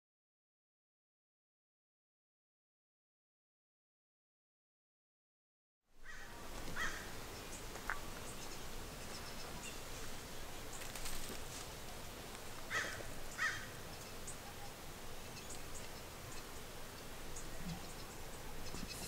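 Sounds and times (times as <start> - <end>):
bird calls: 6.0 - 11.3, 12.6 - 19.0
faint high bird chirps: 13.3 - 19.0.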